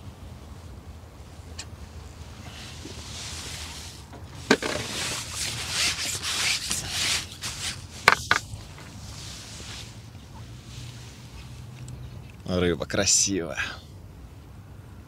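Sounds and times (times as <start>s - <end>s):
rustling and rubbing: 2.4s - 11.8s.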